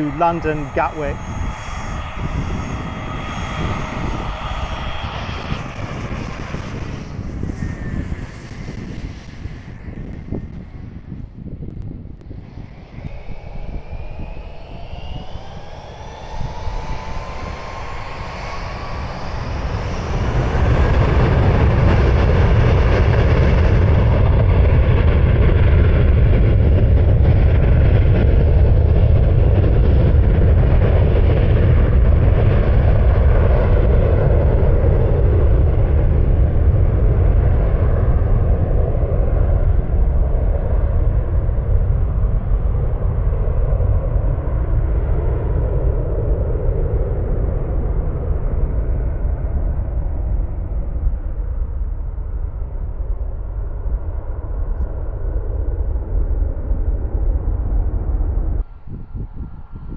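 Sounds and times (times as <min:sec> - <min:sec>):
jet engines spooling up: 0:00.0 - 0:35.7.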